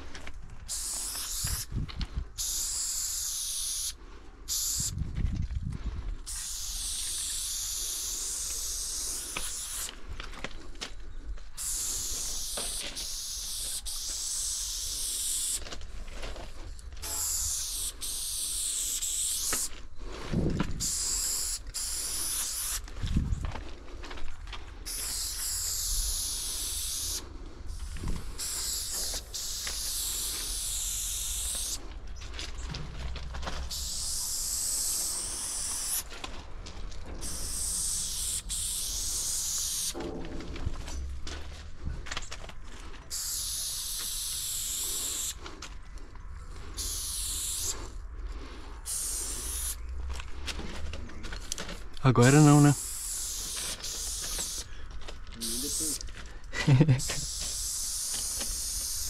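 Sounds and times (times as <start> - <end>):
spray-paint can hissing: 0.7 - 1.7, 2.4 - 5.0, 6.2 - 10.0, 11.6 - 15.6, 17.0 - 19.7, 20.8 - 22.9, 24.9 - 31.8, 33.6 - 36.1, 37.2 - 40.0, 43.1 - 45.4, 46.8 - 47.9, 48.9 - 49.8, 52.3 - 54.7, 55.4 - 56.0, 56.7 - 59.0.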